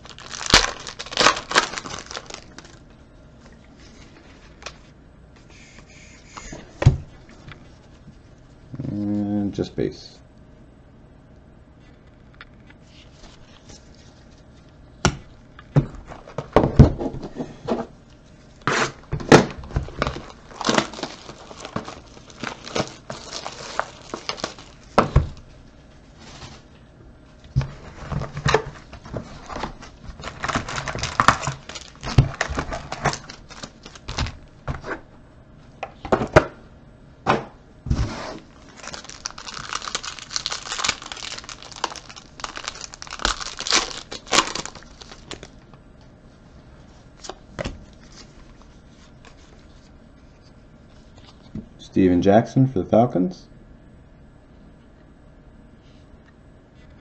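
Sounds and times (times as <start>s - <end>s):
wrappers crinkling and tearing: 0.0s - 2.9s, 18.6s - 25.4s, 27.6s - 34.4s, 38.4s - 45.7s.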